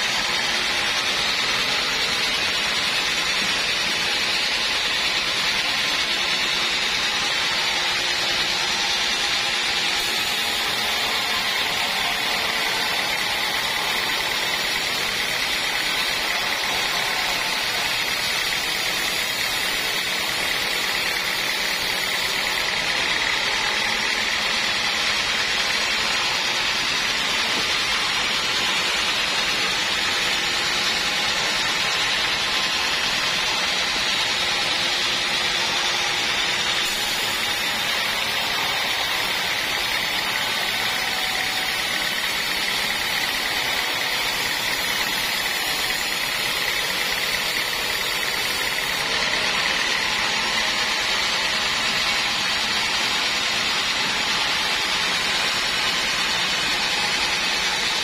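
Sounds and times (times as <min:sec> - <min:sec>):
band saw blade whining: 0:00.0 - 0:58.0
sawmill machine noise: 0:00.0 - 0:58.0.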